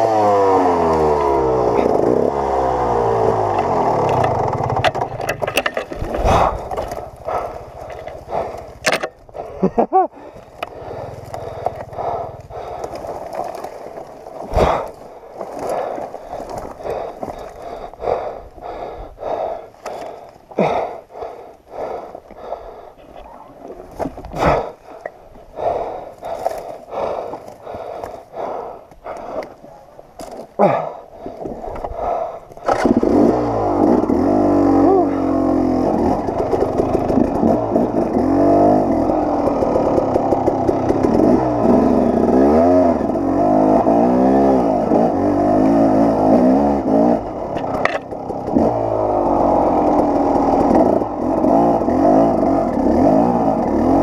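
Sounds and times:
dirt bike engine dying: 0.0s - 54.0s
bike dragged on rocky ground: 3.3s - 18.1s, 22.4s - 30.6s, 35.4s - 42.4s.

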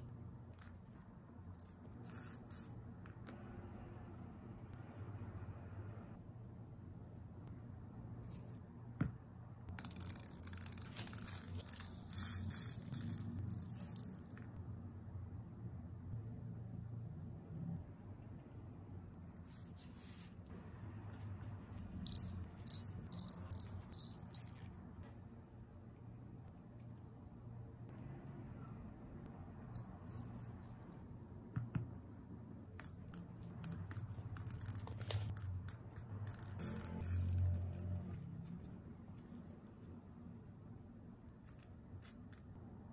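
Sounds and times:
beads rattling in resin shaker: 9.8s - 14.5s, 22.0s - 24.7s, 32.8s - 38.1s.

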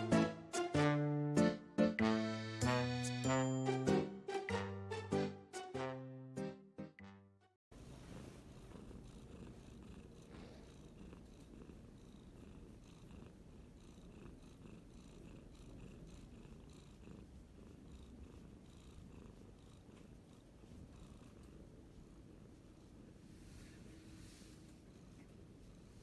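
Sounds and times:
cat purring: 7.8s - 26.0s.

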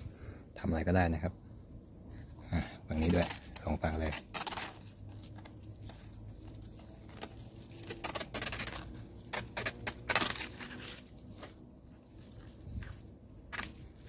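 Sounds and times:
leaf tearing and rustling: 2.1s - 14.0s
knife slicing leaf: 2.9s - 11.5s, 13.5s - 14.0s.

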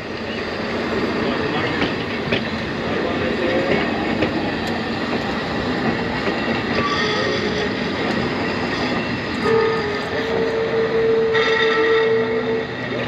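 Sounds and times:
railcar wheels on rails: 0.0s - 13.0s.

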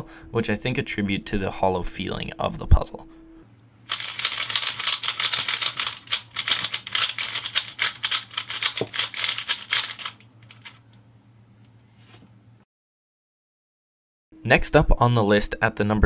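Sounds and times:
puzzle cube clicking: 3.9s - 10.8s.

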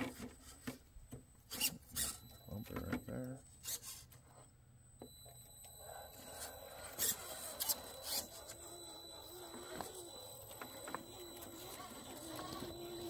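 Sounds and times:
electric motor whine: 5.0s - 13.0s.

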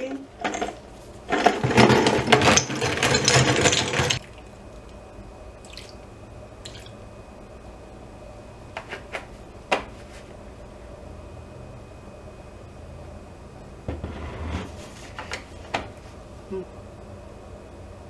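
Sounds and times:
ice cubes poured into plastic bowl: 1.3s - 4.2s.

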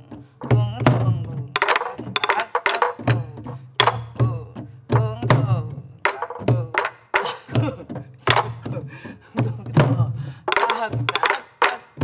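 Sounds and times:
woman chanting: 0.0s - 6.9s, 7.5s - 12.0s
barrel drums playing rhythm: 0.0s - 12.0s
palm thuds on drum heads: 0.0s - 12.0s
sticks cracking on wooden drum shells: 10.5s - 12.0s.

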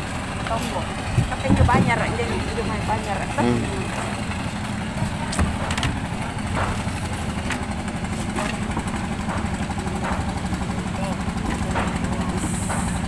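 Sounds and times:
engine idling: 0.0s - 13.0s
short knocks and clatters: 3.9s - 10.6s.

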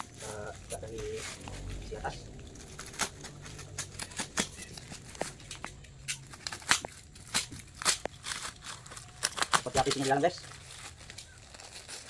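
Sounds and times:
plastic crinkling: 0.0s - 12.0s
utility knife slitting tape: 2.7s - 10.1s.

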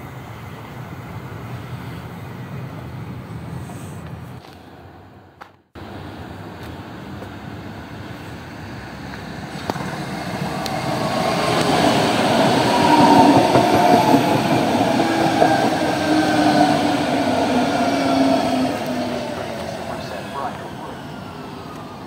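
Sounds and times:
train rumble: 0.0s - 22.0s
train brake whine: 9.5s - 22.0s.

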